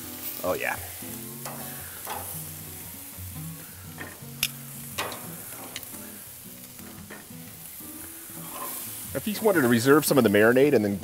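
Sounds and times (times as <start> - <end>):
meat sizzling on grill: 0.0 - 11.0
soft background music: 0.0 - 11.0
metal tongs clacking: 1.4 - 2.6, 4.0 - 7.3, 8.4 - 8.9.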